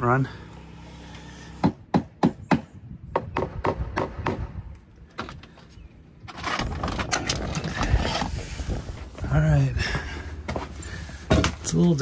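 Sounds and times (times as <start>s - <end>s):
rustling scraping noise: 6.2s - 9.2s.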